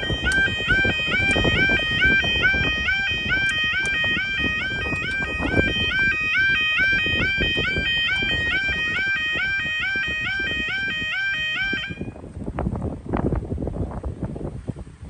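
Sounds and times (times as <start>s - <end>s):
two-note warbling alarm: 0.0s - 12.2s
wind rumble on microphone: 0.0s - 15.0s.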